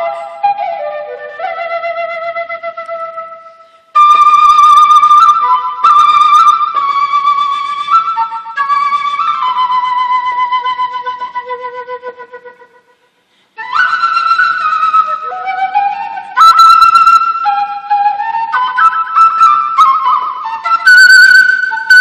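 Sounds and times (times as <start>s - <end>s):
flute melody: 0.0s - 22.0s
player breathing: 13.2s - 13.6s.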